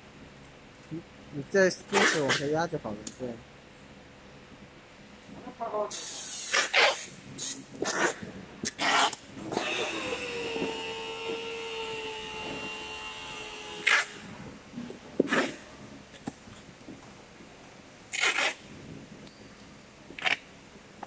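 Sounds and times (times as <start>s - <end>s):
packing tape pulled from tape gun: 5.9s - 12.6s, 13.6s - 14.2s, 15.3s - 15.6s, 18.1s - 18.6s, 20.2s - 20.4s.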